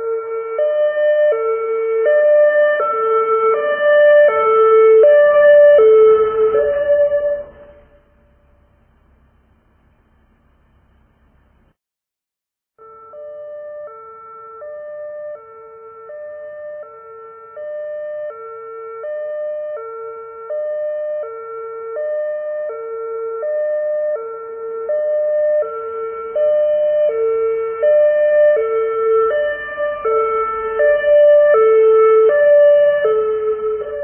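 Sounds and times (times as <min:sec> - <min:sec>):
two-tone siren: 0:00.0 - 0:08.7, 0:12.8 - 0:34.0
low rumble: 0:06.2 - 0:11.7.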